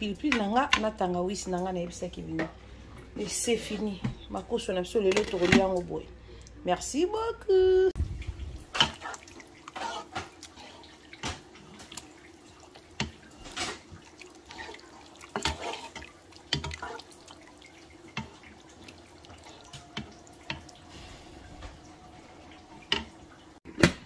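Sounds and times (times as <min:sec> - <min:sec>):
pot simmering with wet pops: 0:08.0 - 0:23.6
spoon stirring pot: 0:08.8 - 0:21.8.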